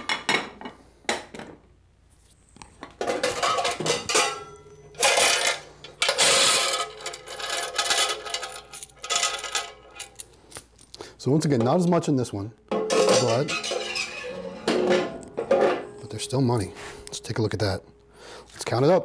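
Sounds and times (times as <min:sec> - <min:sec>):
coins rattling in plastic box: 0:05.0 - 0:10.2.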